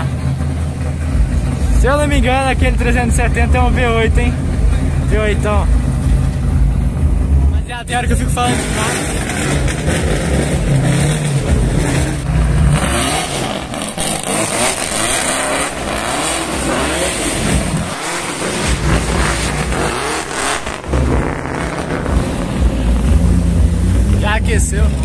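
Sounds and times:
low rumble: 0.0s - 13.8s, 20.7s - 25.0s
car engine revving: 0.0s - 25.0s.

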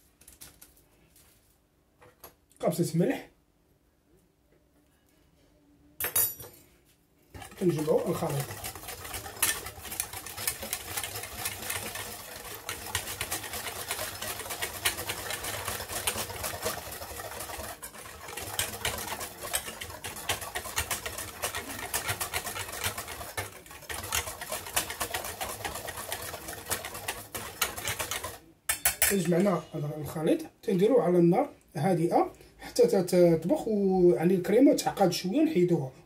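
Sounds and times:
whisk rattling in a saucepan: 7.3s - 30.2s.

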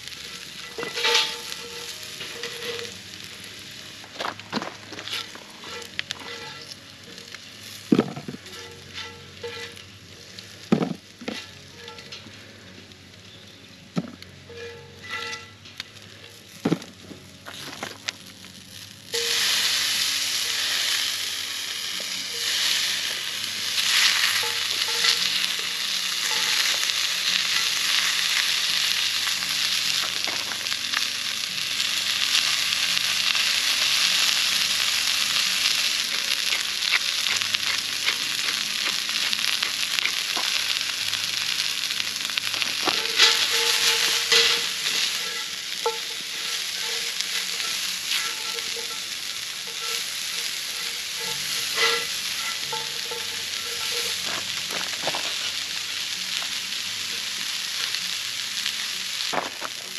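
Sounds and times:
vegetables sizzling in a skillet: 0.0s - 59.9s
utensil clinking against pan: 0.6s - 2.8s, 42.9s - 49.1s, 49.7s - 54.2s.

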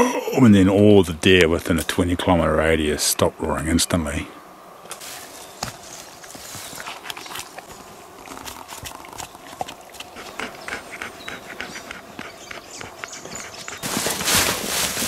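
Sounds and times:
rustling and snapping of ferns: 4.9s - 9.8s, 13.8s - 15.0s
dog panting: 8.8s - 14.0s.

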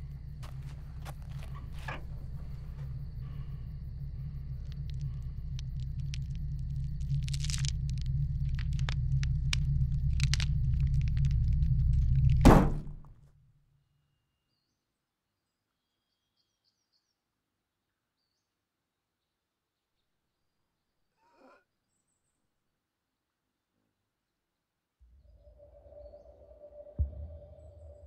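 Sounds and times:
crackles and clicks: 0.0s - 13.2s
low rumbling drone: 0.0s - 13.2s, 25.0s - 28.0s
sharp loud hit: 12.4s - 13.1s.

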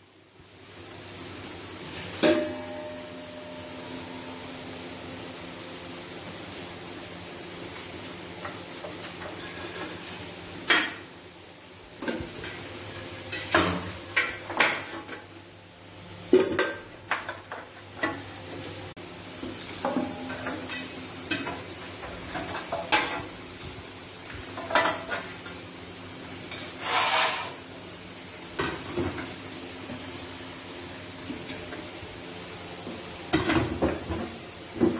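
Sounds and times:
metal pots and spoon clanking: 2.2s - 3.8s, 8.4s - 11.1s, 13.3s - 15.3s, 19.5s - 23.4s, 24.4s - 25.6s.

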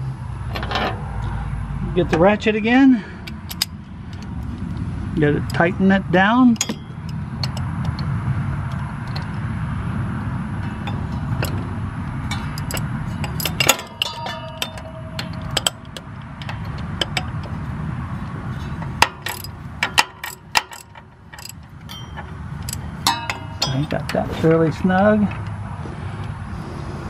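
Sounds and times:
steady low rumble: 0.0s - 27.0s
ratchet wrench clicking: 3.2s - 4.3s, 12.3s - 17.5s, 19.0s - 24.0s
metal tools clinking: 6.5s - 8.1s, 10.6s - 17.6s, 18.2s - 25.4s.

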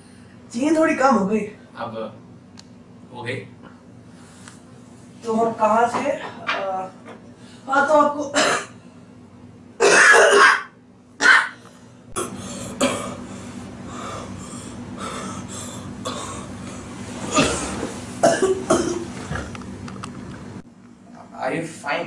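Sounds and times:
man coughing: 8.4s - 8.8s, 9.8s - 11.6s, 12.2s - 13.2s, 16.0s - 16.5s, 17.3s - 19.5s.

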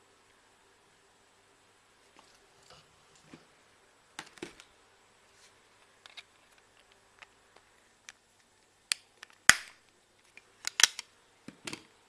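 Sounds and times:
plastic eyeglass frames clicking: 8.9s - 11.1s.

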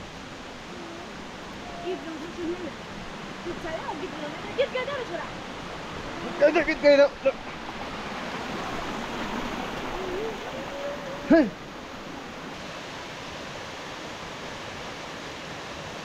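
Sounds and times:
steady rushing hiss: 0.0s - 16.0s
faint voice: 9.9s - 11.6s
loud vocal call: 9.9s - 11.6s.

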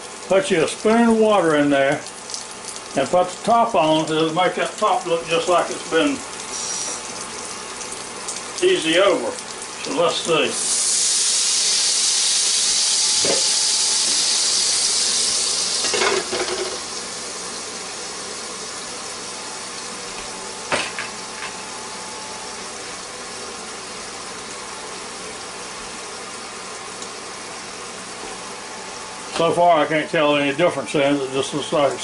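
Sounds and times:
egg sizzling in pan: 3.8s - 21.7s.

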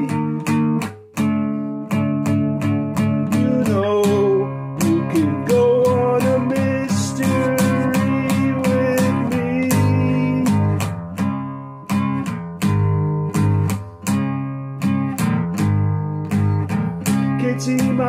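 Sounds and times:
strummed guitar chords: 0.0s - 18.0s.

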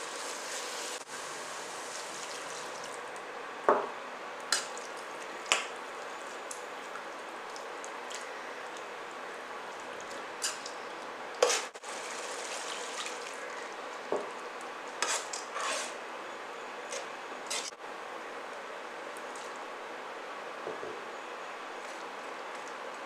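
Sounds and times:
steady hiss: 0.0s - 2.8s.

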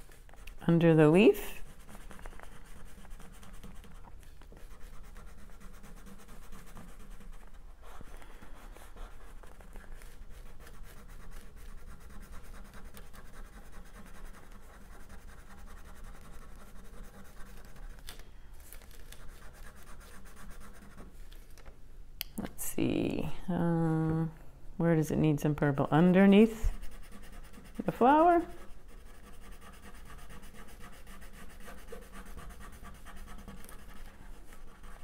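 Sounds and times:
crayon scribbling on paper: 0.4s - 18.0s, 19.0s - 21.1s, 26.2s - 35.0s.

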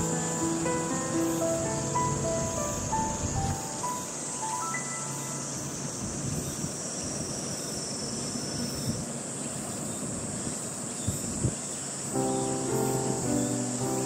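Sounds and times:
insects chirring: 0.0s - 14.0s
wind rumble on microphone: 2.0s - 3.8s, 5.8s - 11.8s.

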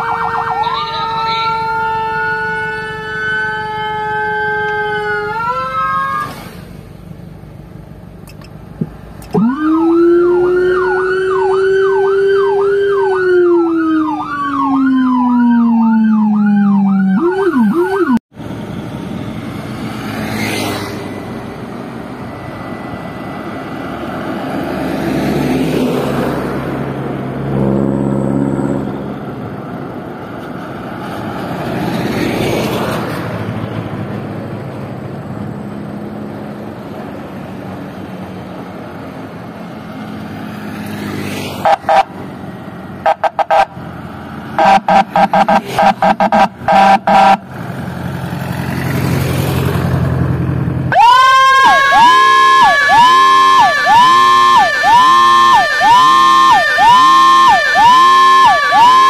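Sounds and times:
electronic siren yelping: 0.0s - 6.4s, 9.2s - 18.2s, 41.6s - 42.1s, 43.0s - 43.8s, 44.6s - 47.5s, 50.9s - 59.0s
road traffic passing: 0.0s - 59.0s.

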